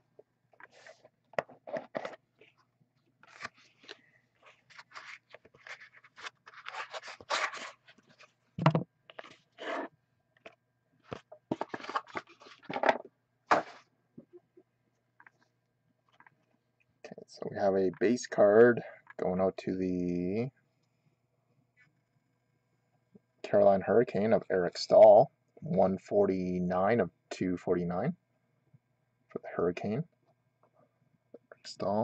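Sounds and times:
packaging crinkling and tearing: 3.2 - 8.3, 11.5 - 12.8.

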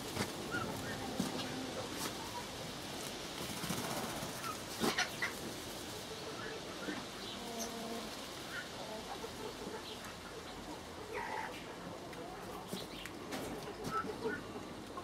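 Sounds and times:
steady hiss: 0.0 - 13.3.

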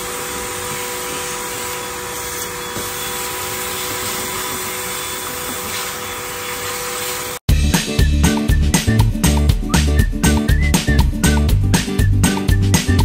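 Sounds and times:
vacuum cleaner running: 0.0 - 7.5.

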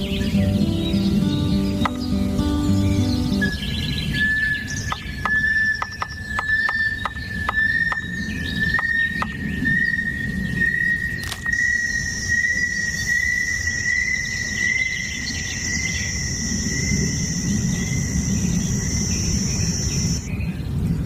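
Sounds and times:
insects droning: 0.0 - 20.3.

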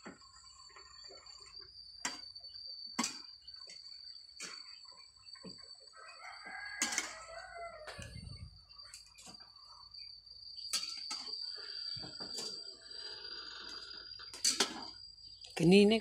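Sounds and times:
rooster crowing: 5.8 - 8.6.

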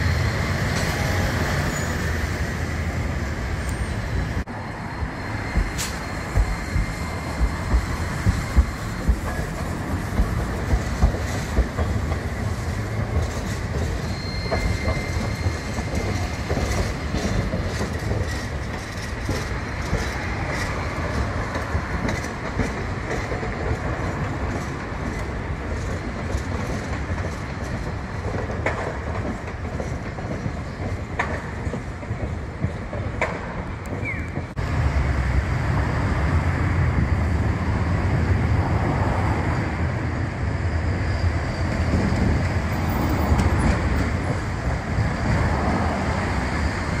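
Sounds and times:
high wheel squeal: 0.0 - 9.8, 11.2 - 21.2, 37.6 - 47.0
traffic rumble: 0.0 - 47.0
tram wheels clicking over rails: 5.2 - 47.0.

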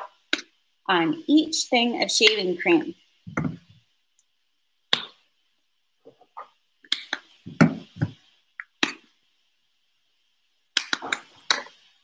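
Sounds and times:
plastic bottles knocking on countertop: 3.3 - 3.7.

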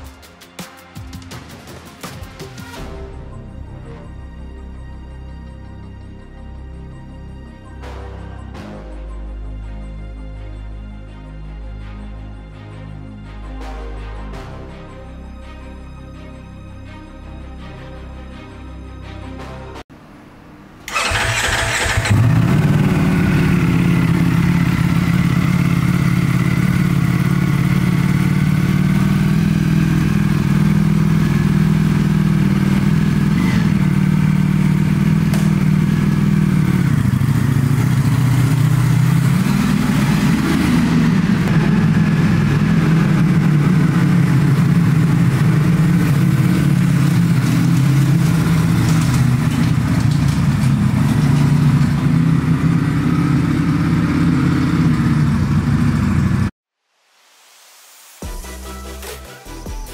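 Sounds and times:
motorcycle engine cranking: 20.9 - 27.6, 43.3 - 55.3
motorcycle engine idling: 20.9 - 56.5.

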